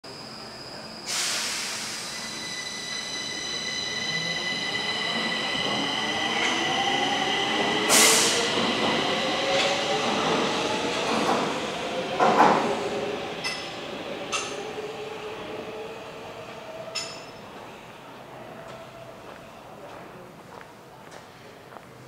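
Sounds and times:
train wheels squealing: 0:00.1 - 0:08.5.

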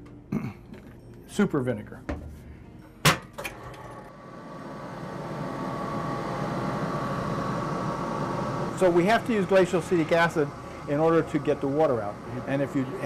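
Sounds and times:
centrifuge motor whirring: 0:04.4 - 0:13.0.

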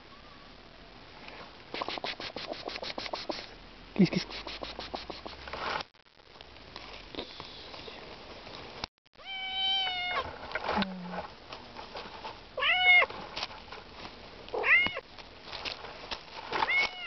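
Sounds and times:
cat meowing: 0:09.2 - 0:10.3, 0:12.6 - 0:13.1, 0:14.6 - 0:15.0, 0:16.6 - 0:17.0.

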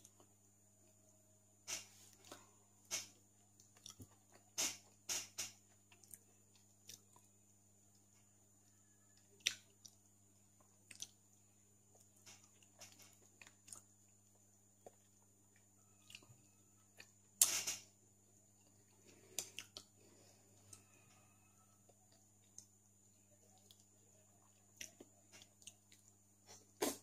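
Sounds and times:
faint steady hum: 0:00.0 - 0:27.0
person chewing with mouth smacks: 0:03.6 - 0:04.5, 0:05.7 - 0:07.3, 0:09.4 - 0:10.0, 0:10.6 - 0:11.2, 0:18.6 - 0:19.9, 0:23.5 - 0:27.0.

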